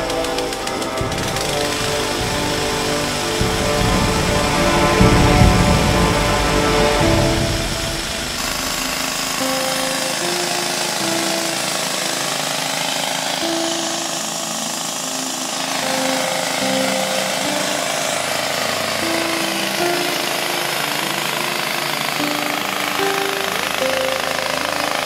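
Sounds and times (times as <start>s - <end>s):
simple background music melody: 0.0s - 12.6s.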